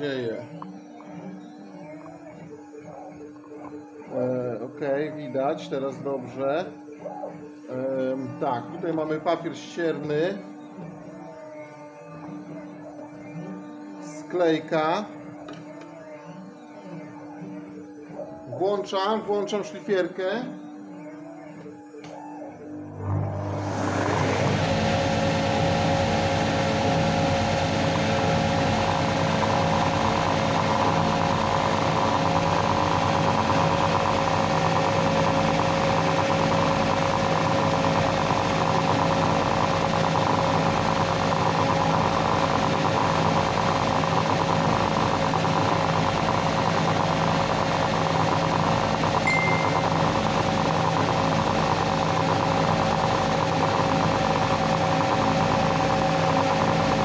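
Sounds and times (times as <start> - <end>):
belt sander running: 22.8 - 57.0.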